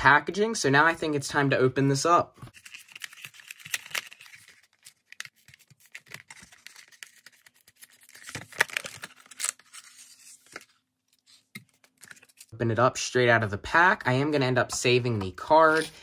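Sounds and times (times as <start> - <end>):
plastic blister crackling and tearing: 2.5 - 10.6.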